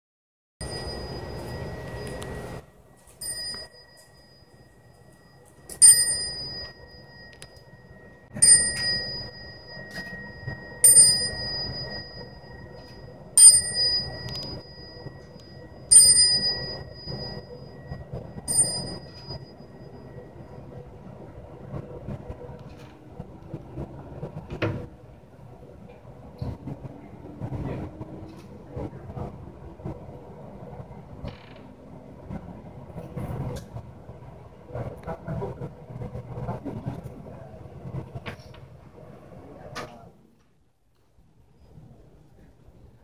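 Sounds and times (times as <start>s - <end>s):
small high-pitched bell strikes: 0.6s - 20.7s.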